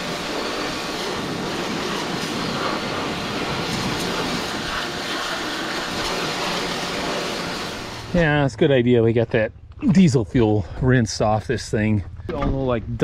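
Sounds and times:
pressure washer spray hissing: 0:00.0 - 0:08.3
washer pump humming: 0:00.0 - 0:08.4.

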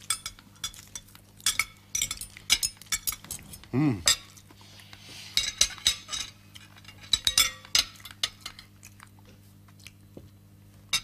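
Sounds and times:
cutlery clinking on plates: 0:00.0 - 0:04.4, 0:05.3 - 0:08.7.

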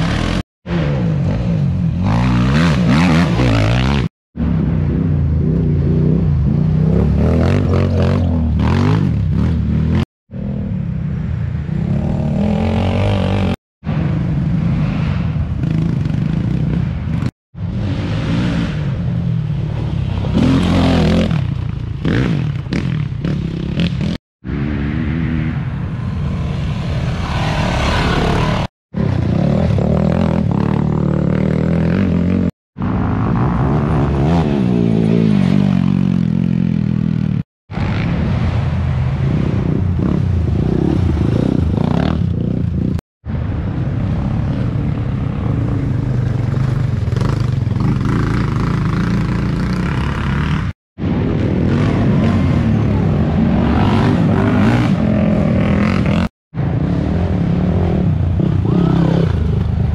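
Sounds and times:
racing quad engines revving: 0:00.0 - 0:04.1, 0:04.9 - 0:10.8, 0:11.7 - 0:13.6, 0:14.7 - 0:19.2, 0:27.2 - 0:38.6, 0:44.2 - 0:59.9.

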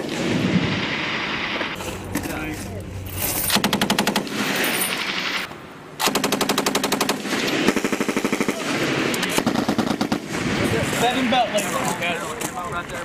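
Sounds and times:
machine guns firing bursts: 0:03.5 - 0:11.2.

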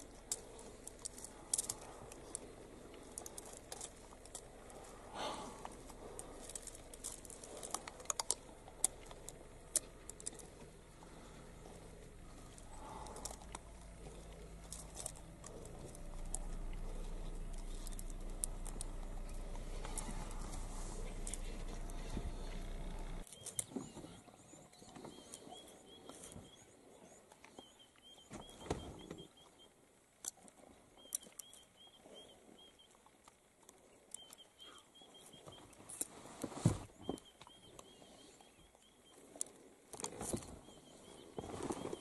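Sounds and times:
steady low hum: 0:00.0 - 0:42.0.

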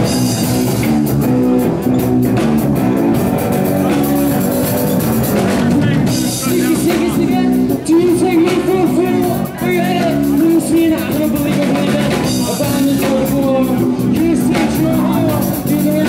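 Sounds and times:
bass guitar: 0:00.0 - 0:16.0
distorted electric guitar: 0:00.0 - 0:16.0
drum kit: 0:00.0 - 0:16.0
man singing: 0:05.8 - 0:16.0.

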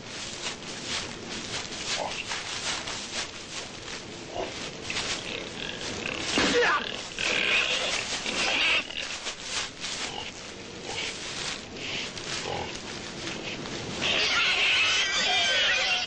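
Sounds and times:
pig squealing and grunting: 0:05.6 - 0:09.1, 0:14.0 - 0:16.0.

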